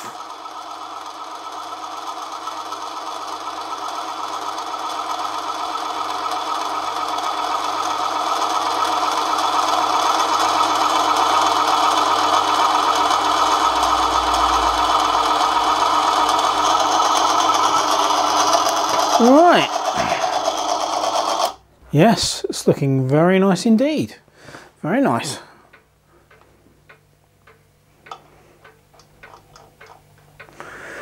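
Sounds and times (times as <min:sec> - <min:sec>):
lathe cutting metal whirring: 0:00.0 - 0:21.6.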